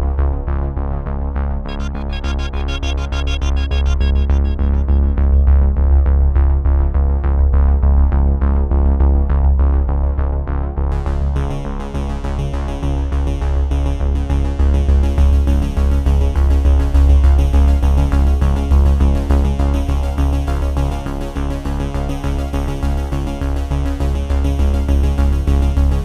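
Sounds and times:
electronic music with bass beat: 0:01.7 - 0:06.3.

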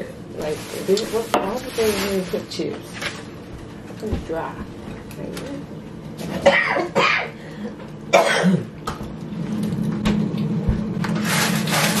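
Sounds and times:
low hum with hiss: 0:00.0 - 0:12.0
person coughing: 0:06.4 - 0:07.4, 0:08.1 - 0:08.7.

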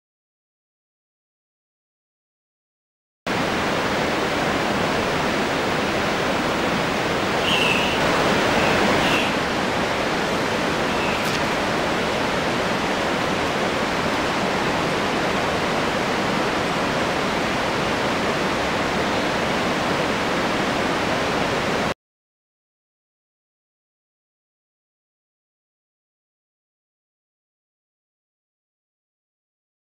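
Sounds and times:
rushing water: 0:03.3 - 0:22.0
high bird chirps: 0:07.4 - 0:09.4, 0:10.8 - 0:11.4.

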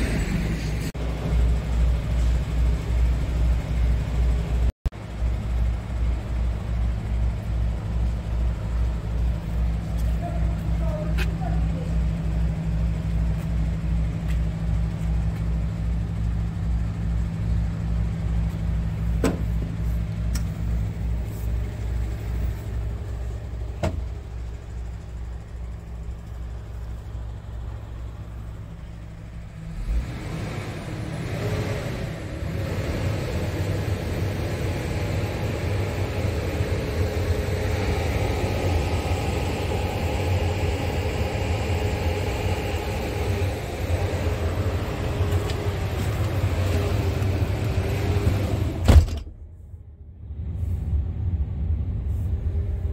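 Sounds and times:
diesel engine idling: 0:00.0 - 0:52.9
thump: 0:19.2 - 0:19.8, 0:23.8 - 0:24.1, 0:48.8 - 0:49.4.

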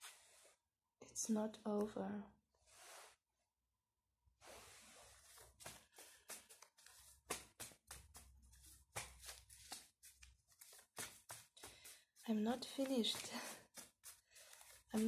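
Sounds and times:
cards being shuffled: 0:05.1 - 0:15.0.

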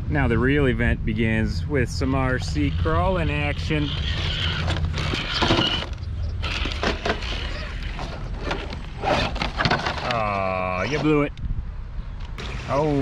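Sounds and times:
low rumble: 0:00.0 - 0:12.6
toy trucks grinding over rocks: 0:02.3 - 0:11.3.

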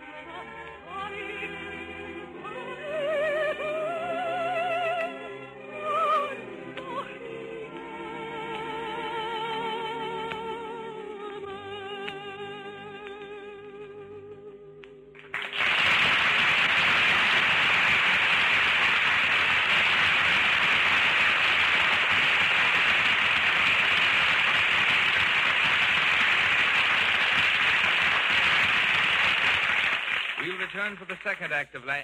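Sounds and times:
audience applauding: 0:15.2 - 0:31.7.

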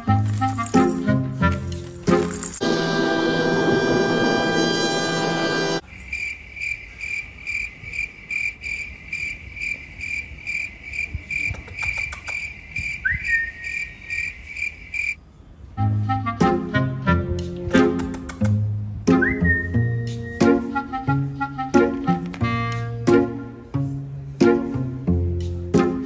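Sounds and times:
cricket chirping: 0:05.8 - 0:15.2.

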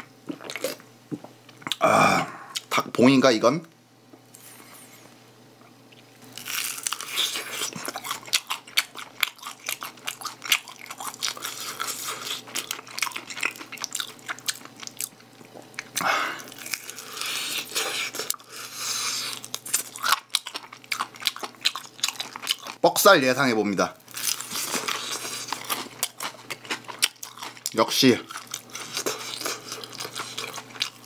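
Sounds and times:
crunching and chewing fried chicken: 0:06.2 - 0:22.8, 0:24.0 - 0:31.0.

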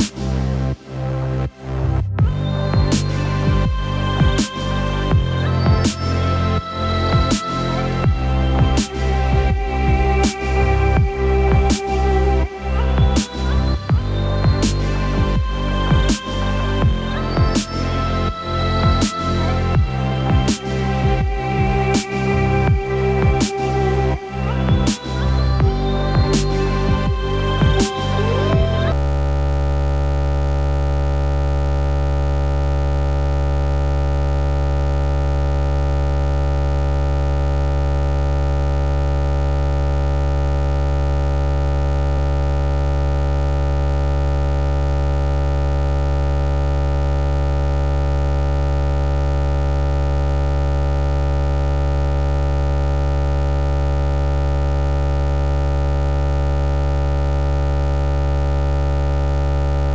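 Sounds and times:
electronic drone of low tones: 0:00.0 - 0:59.9.

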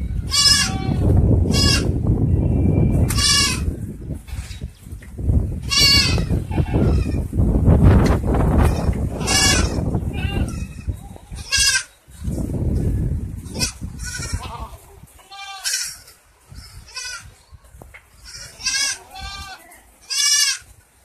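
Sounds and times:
goats bleating: 0:00.3 - 0:02.0, 0:03.2 - 0:03.7, 0:05.6 - 0:07.2, 0:08.6 - 0:12.0, 0:13.4 - 0:17.3, 0:18.1 - 0:20.7.

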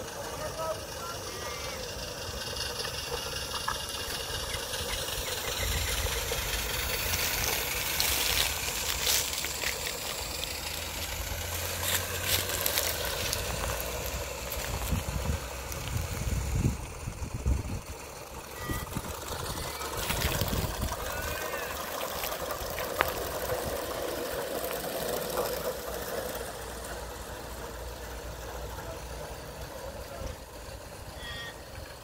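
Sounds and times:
model trains rumbling on track: 0:00.0 - 0:32.0
sharp clicks of track: 0:02.1 - 0:16.2, 0:21.8 - 0:27.0.

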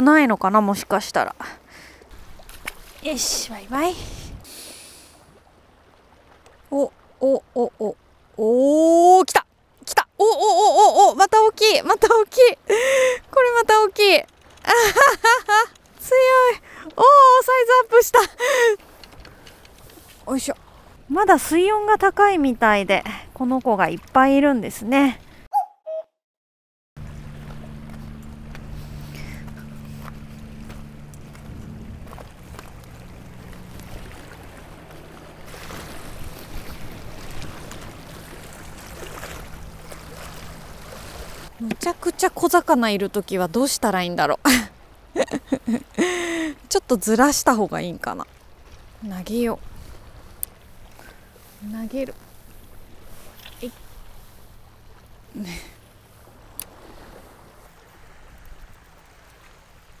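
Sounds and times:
water lapping against rocks: 0:00.0 - 0:08.4, 0:11.5 - 0:25.5, 0:27.0 - 1:00.0
distant boat engine hum: 0:00.0 - 0:25.7, 0:27.0 - 1:00.0
wind on microphone: 0:03.6 - 0:04.5, 0:27.0 - 0:41.5.

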